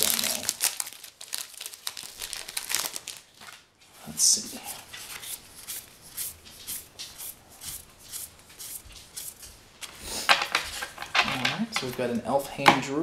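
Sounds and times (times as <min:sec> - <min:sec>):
cards swishing: 0:04.3 - 0:11.0.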